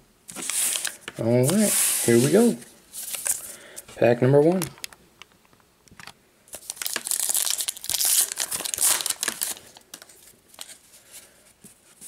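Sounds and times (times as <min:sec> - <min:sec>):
cards sliding out rustling: 0:00.3 - 0:03.6
wrapper tearing and crinkling: 0:06.5 - 0:10.8.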